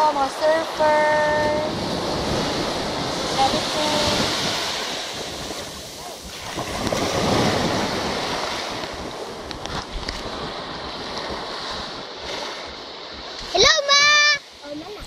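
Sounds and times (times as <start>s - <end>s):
surf washing onto beach: 0.0s - 15.0s
wind buffeting microphone: 0.0s - 15.0s.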